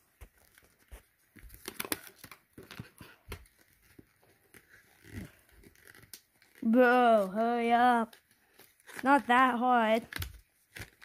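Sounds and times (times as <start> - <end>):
cardboard rustling and scraping: 0.0 - 11.0.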